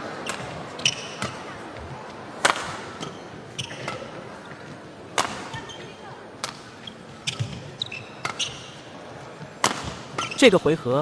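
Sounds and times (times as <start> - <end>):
indoor arena hum: 0.0 - 11.0
racket hitting shuttlecock: 0.2 - 1.6, 2.4 - 4.3, 5.1 - 5.7, 6.4 - 6.7, 7.3 - 8.8, 9.5 - 10.4.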